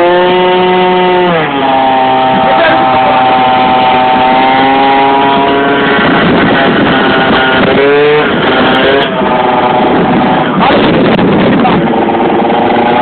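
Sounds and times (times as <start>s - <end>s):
two-stroke scooter engine revving: 0.0s - 13.0s.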